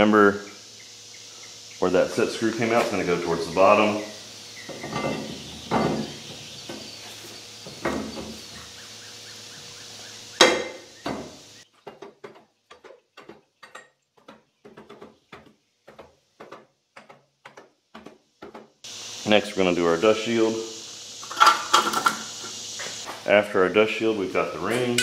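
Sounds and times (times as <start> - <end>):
metal clunks: 4.6 - 6.9.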